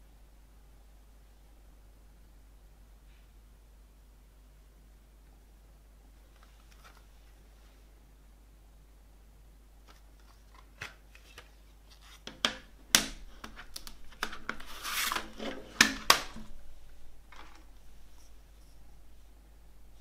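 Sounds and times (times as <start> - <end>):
plastic case clicking: 12.3 - 16.6
scraping rub: 13.3 - 16.5.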